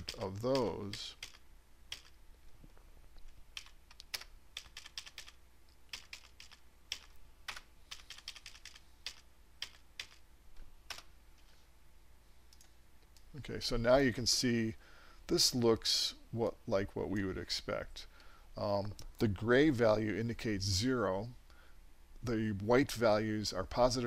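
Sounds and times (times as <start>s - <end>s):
computer keyboard typing: 0.0s - 2.2s, 3.5s - 10.2s, 10.9s - 11.1s
low steady hum: 0.0s - 24.0s.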